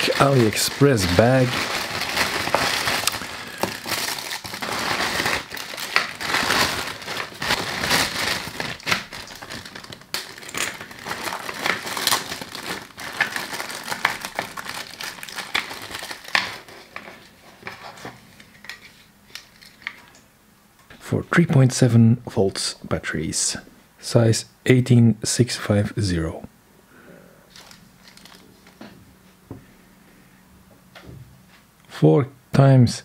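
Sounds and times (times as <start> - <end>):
plastic packaging crinkling: 0.0 - 20.2, 27.5 - 28.9.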